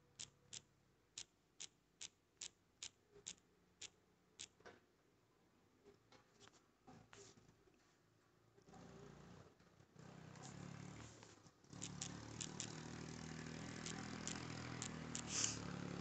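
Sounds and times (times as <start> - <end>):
faint clicks: 11.8 - 12.8.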